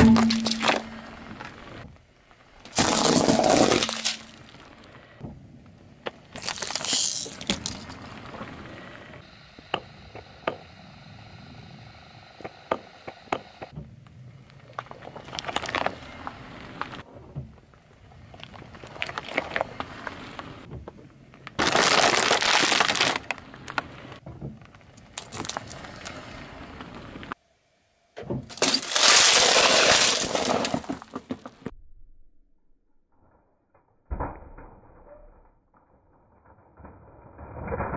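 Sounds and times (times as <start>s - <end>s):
car tyre crushing objects: 0.0s - 5.0s, 6.0s - 9.9s, 14.8s - 27.3s, 28.4s - 31.7s
crackling and crunching: 0.0s - 5.0s, 6.0s - 8.9s, 14.4s - 17.1s, 18.0s - 20.7s, 21.3s - 26.9s, 28.5s - 31.6s
candies scattering: 2.7s - 4.4s, 6.4s - 8.0s, 21.6s - 23.2s, 28.5s - 31.0s.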